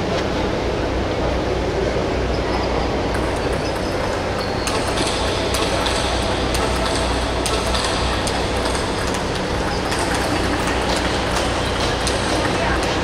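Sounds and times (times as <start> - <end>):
low background hum: 0.0 - 13.0
table tennis balls clicking: 2.9 - 13.0.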